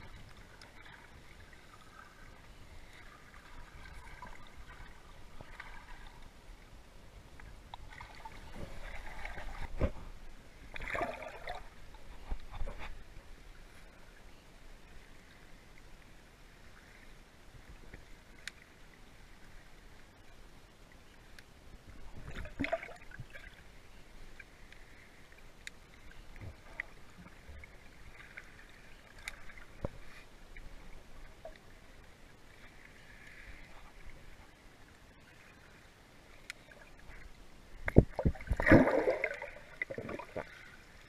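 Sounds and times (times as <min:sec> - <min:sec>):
water splashing and gurgling: 0:00.0 - 0:06.5, 0:07.5 - 0:13.1, 0:22.0 - 0:23.7, 0:36.4 - 0:41.0
underwater swirling and bubbling: 0:00.0 - 0:20.2, 0:20.9 - 0:41.0.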